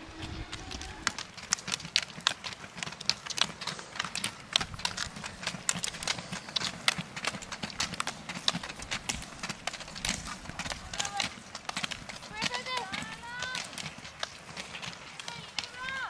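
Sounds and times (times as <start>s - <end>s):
wheels rumbling on road: 0.0s - 16.0s
ski pole tips clicking on asphalt: 0.3s - 16.0s.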